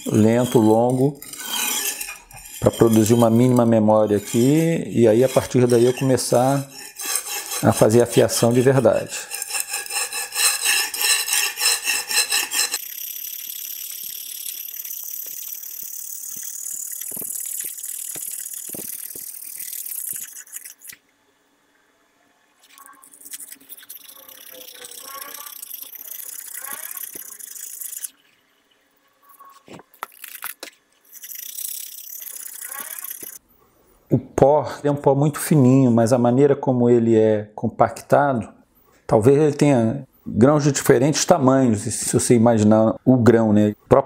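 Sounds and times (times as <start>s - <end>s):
knife scraping on brick: 0.0s - 12.8s, 24.3s - 27.4s.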